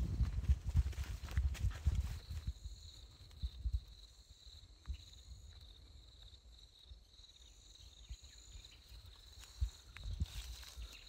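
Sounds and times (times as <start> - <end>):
footsteps through grass: 0.0 - 2.7, 8.8 - 11.0
insect chorus trilling: 2.0 - 11.0.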